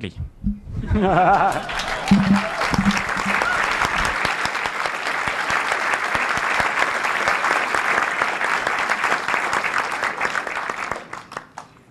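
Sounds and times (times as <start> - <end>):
audience applauding: 1.3 - 11.7.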